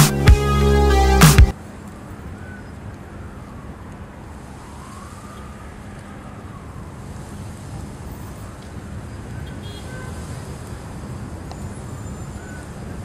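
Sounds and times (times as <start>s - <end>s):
distant highway traffic: 0.1s - 13.0s
faint siren wailing: 2.0s - 13.0s.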